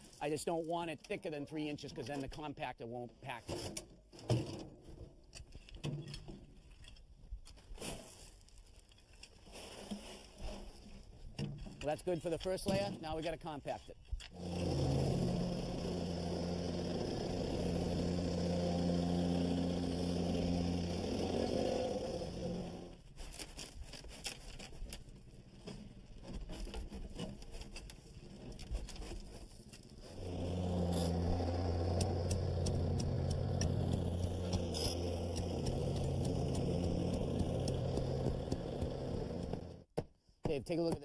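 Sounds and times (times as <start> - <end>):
plate compactor engine running: 14.4 - 22.9, 30.1 - 39.8
stone being raked: 31.9 - 39.7.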